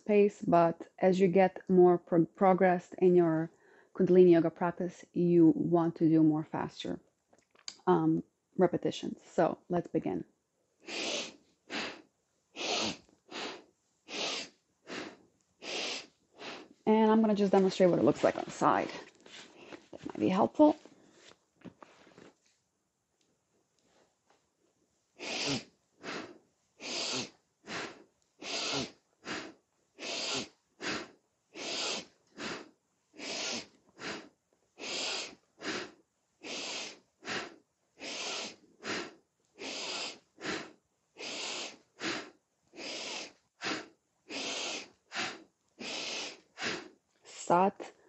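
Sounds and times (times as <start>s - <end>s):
woman breathing forcefully: 10.8s - 12.0s, 12.6s - 16.7s, 25.2s - 46.9s.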